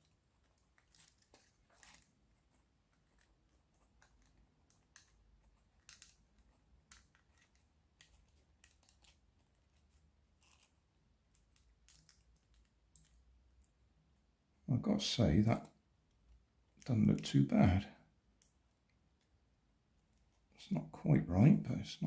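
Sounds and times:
plastic pieces clicking: 4.0s - 9.2s.

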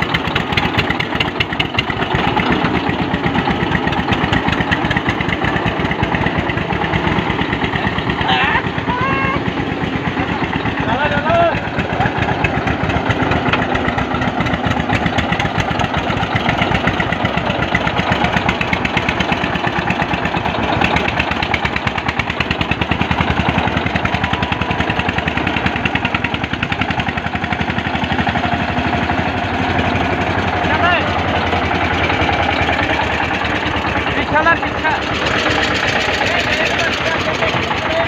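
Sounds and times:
diesel tractor engines chugging: 0.0s - 38.0s
tractor wheels spinning in mud: 0.0s - 38.0s.

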